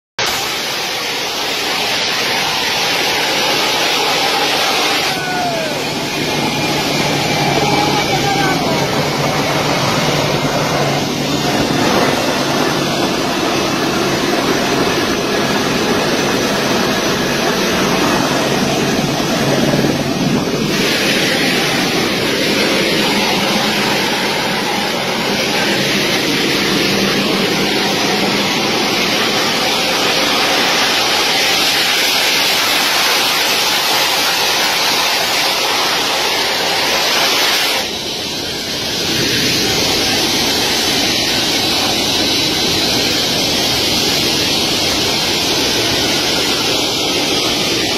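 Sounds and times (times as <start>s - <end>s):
jet engines roaring: 0.2s - 47.9s
wind buffeting microphone: 5.2s - 32.8s.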